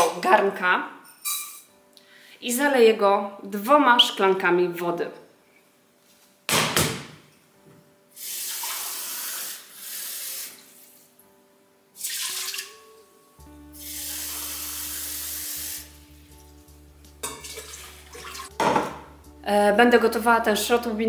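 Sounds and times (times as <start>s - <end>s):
water pouring into a pot: 8.2s - 10.9s, 12.0s - 12.8s, 13.8s - 16.0s, 17.2s - 18.5s
water running from a tap: 8.2s - 10.9s, 12.0s - 12.7s, 13.8s - 16.0s, 17.2s - 18.5s.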